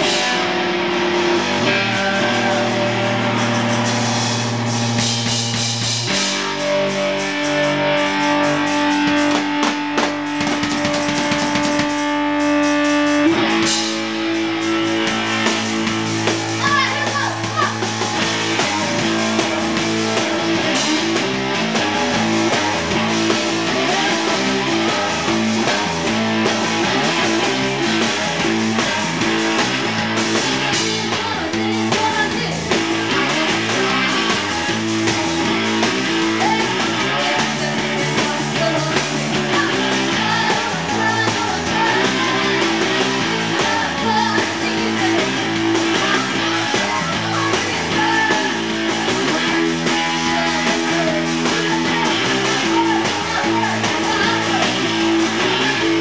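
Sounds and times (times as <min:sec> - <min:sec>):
drum kit: 0:00.0 - 0:56.0
electric guitar: 0:00.0 - 0:56.0
woman singing: 0:30.6 - 0:34.3, 0:36.3 - 0:56.0.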